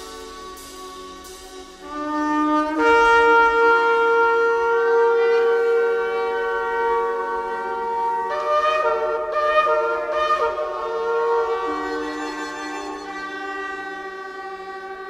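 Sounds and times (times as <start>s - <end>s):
shofar blowing: 0.0s - 15.0s.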